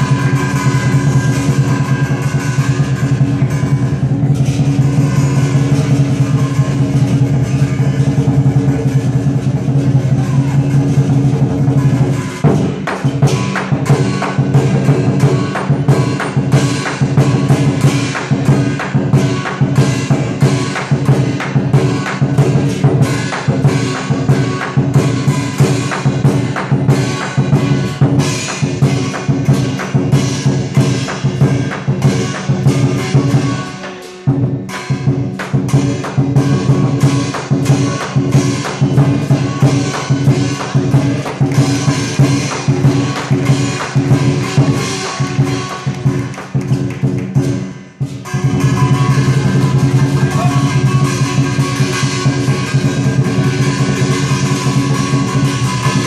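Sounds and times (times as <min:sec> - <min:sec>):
cymbal crashes: 0:00.0 - 0:56.0
gong: 0:00.0 - 0:56.0
large drum fast rhythm: 0:00.0 - 0:56.0.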